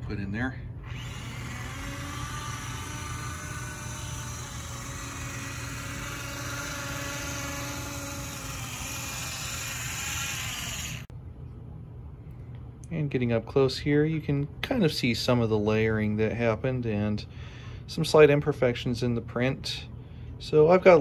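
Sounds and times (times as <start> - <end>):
model train motor whirring: 0.9 - 11.1.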